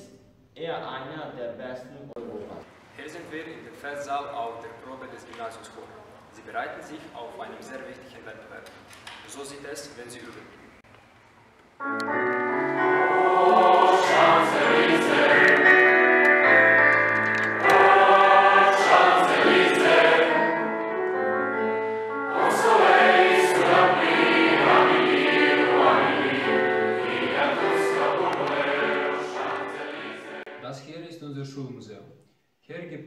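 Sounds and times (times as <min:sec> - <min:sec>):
choir singing: 0:11.9 - 0:30.6.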